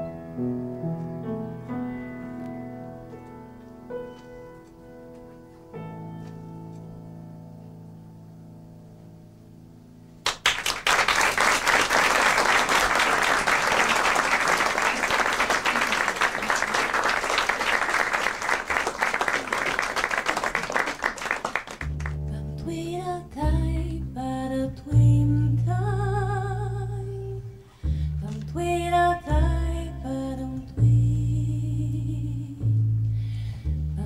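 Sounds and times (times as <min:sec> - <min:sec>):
audience applause: 0:10.2 - 0:22.2
low bass notes: 0:21.8 - 0:34.0
woman singing: 0:22.3 - 0:27.6, 0:28.2 - 0:32.7.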